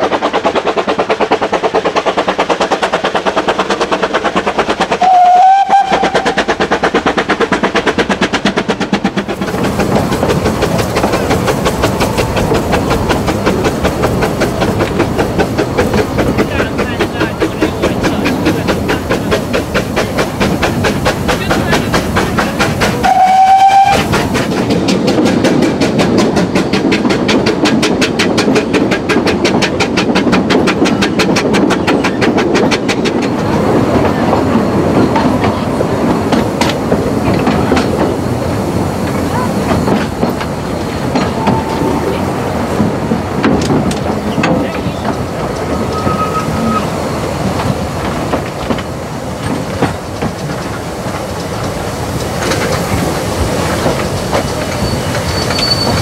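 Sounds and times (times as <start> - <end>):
steam train wheels clicking: 0.0 - 56.0
faint train squeals: 37.4 - 42.4, 44.3 - 47.1, 54.0 - 56.0.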